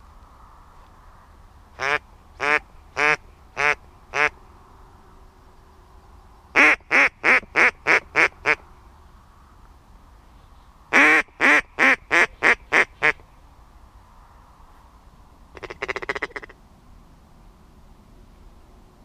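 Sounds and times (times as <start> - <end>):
duck quacking: 1.8 - 4.3, 10.9 - 13.2, 15.6 - 16.6.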